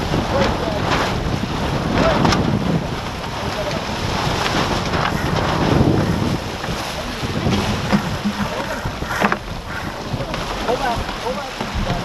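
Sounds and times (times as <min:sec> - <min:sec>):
water rushing along boat hull: 0:00.0 - 0:12.0
wind buffeting microphone: 0:00.0 - 0:12.0.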